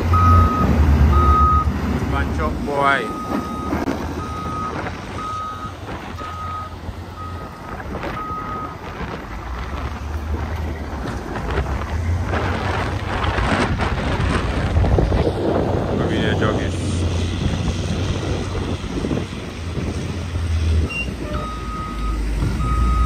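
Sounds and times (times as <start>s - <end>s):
truck backup alarm beeping: 0.0s - 8.9s, 18.3s - 18.8s, 20.8s - 23.0s
broad noise: 0.0s - 23.0s
diesel engine running: 0.0s - 23.0s.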